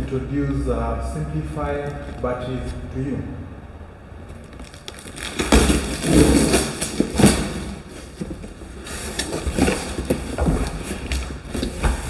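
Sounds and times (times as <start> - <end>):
cardboard scraping and rustling: 4.4 - 12.0.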